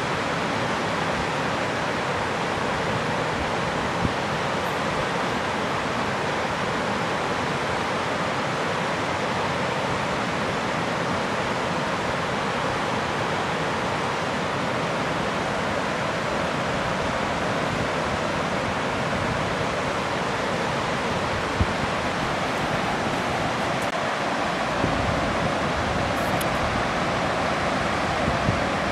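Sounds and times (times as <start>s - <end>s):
river rushing over rapids: 0.0s - 28.9s
wind buffeting microphone: 21.1s - 23.9s, 24.7s - 28.9s.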